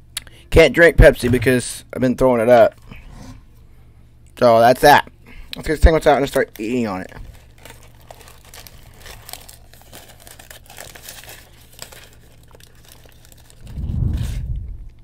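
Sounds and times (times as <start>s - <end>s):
sandwich wrapper crinkling: 5.6s - 13.7s
low muffled rumble on microphone: 13.6s - 15.0s.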